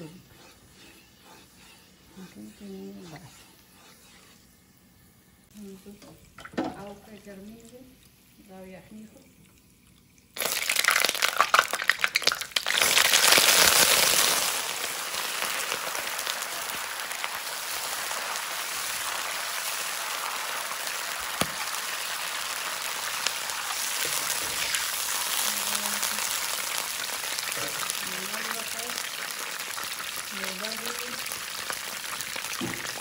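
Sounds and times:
stock hissing in hot oil: 0.0 - 6.2, 12.9 - 33.0.

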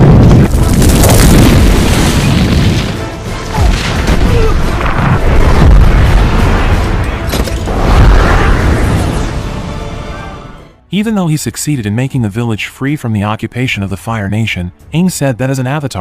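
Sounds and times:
deep booms and fire blasts: 0.0 - 10.1
film music score: 1.3 - 16.0.

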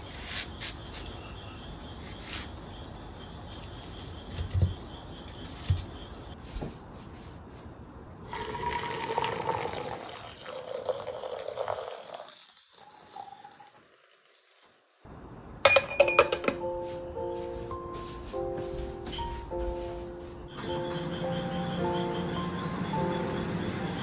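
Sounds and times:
water pouring into teapot: 8.3 - 14.8
glass lid clinking: 15.7 - 16.6.

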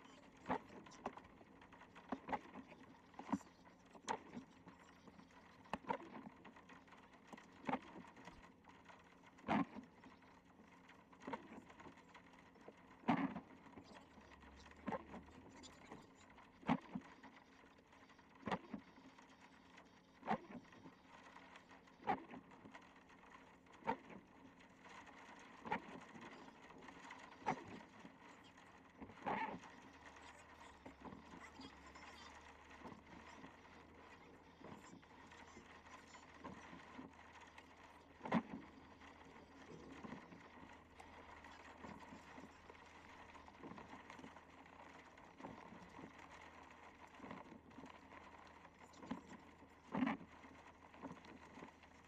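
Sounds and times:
low vehicle hum: 0.0 - 52.0
windshield wipers sweeping: 20.2 - 52.0.

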